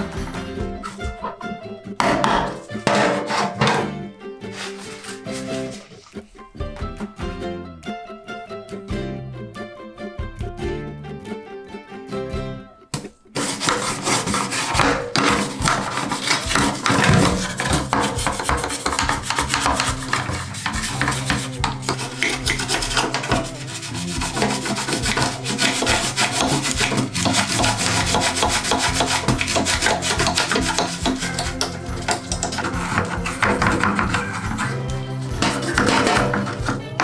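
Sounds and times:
scrubbing a hard surface: 0:02.6 - 0:03.7, 0:04.4 - 0:06.3, 0:13.4 - 0:36.8.

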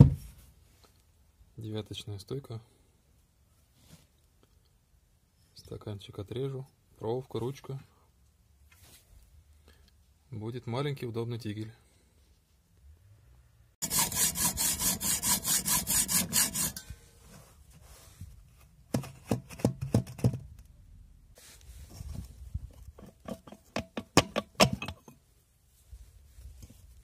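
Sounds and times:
hand saw rasping through steel: 0:13.8 - 0:16.9.

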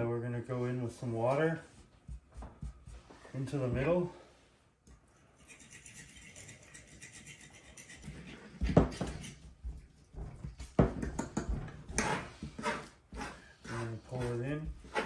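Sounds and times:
fork scratching on wooden table: 0:05.4 - 0:10.1, 0:11.9 - 0:15.0.

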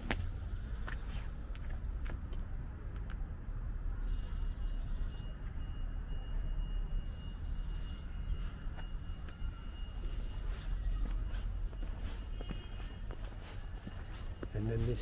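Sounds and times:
bird chirps: 0:03.9 - 0:15.0
footsteps: 0:08.7 - 0:15.0.

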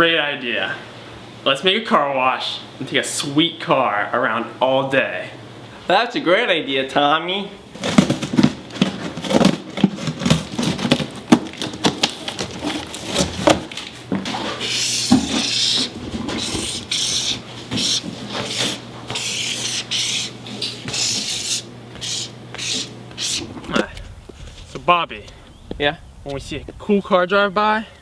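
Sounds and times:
faint steady hum: 0:00.0 - 0:28.0
marker scratching on cardboard: 0:14.6 - 0:23.5.

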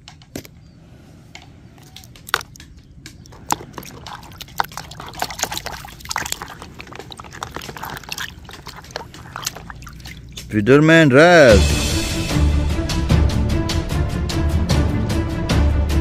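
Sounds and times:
water sloshing and splashing: 0:01.7 - 0:10.6.

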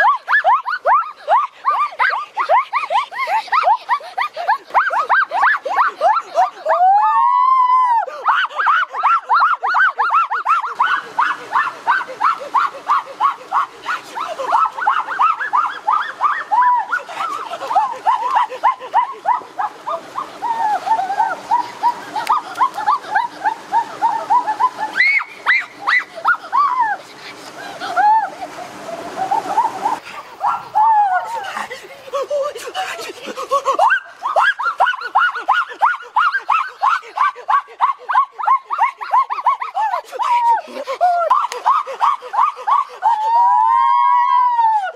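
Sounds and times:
animal yelping: 0:29.3 - 0:31.4.

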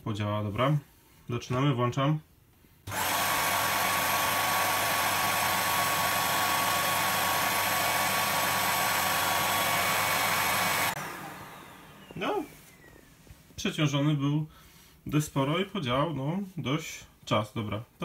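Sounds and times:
hair dryer and vacuum cleaner running: 0:02.9 - 0:13.3.

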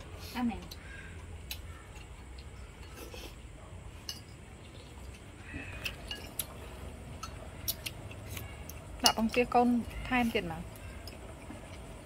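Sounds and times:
chopsticks clinking on bowls: 0:04.0 - 0:04.4, 0:05.0 - 0:09.7.

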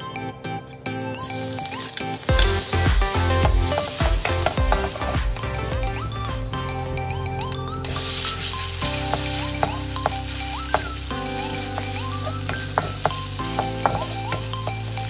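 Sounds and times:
background music with chords: 0:00.0 - 0:15.0
meat sizzling in hot oil: 0:01.2 - 0:05.1, 0:07.9 - 0:15.0.

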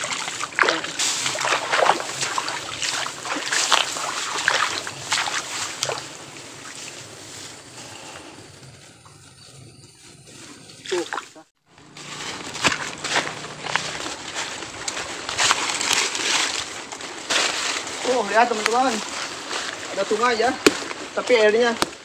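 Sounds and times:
footsteps wading through water: 0:00.0 - 0:07.5, 0:10.8 - 0:20.0.

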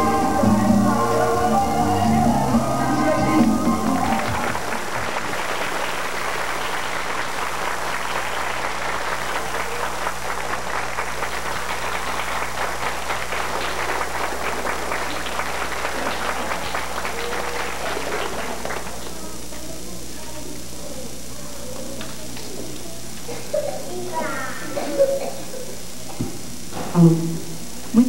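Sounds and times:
audience applauding: 0:00.0 - 0:19.6
steady low hum: 0:00.0 - 0:28.0.

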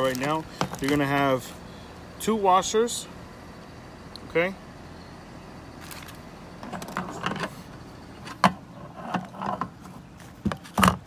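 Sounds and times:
plastic bag crinkling: 0:00.0 - 0:01.1, 0:05.8 - 0:06.2.

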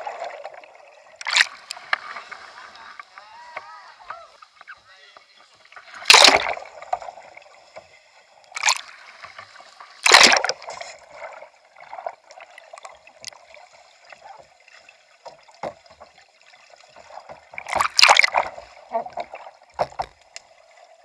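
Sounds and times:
underwater sloshing and bubbling: 0:00.0 - 0:21.0
loud rushes of water: 0:10.0 - 0:10.6.

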